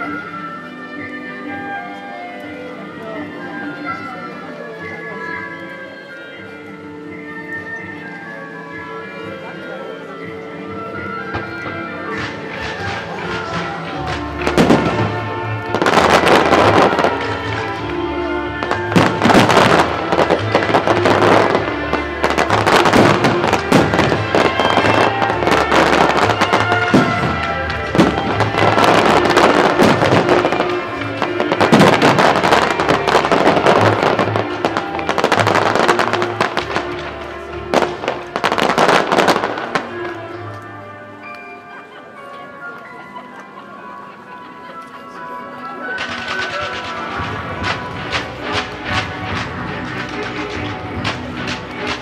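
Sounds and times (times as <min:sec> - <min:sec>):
fireworks bangs and crackling: 0:11.1 - 0:40.3, 0:46.0 - 0:52.0
loud music: 0:11.9 - 0:40.1, 0:46.0 - 0:52.0.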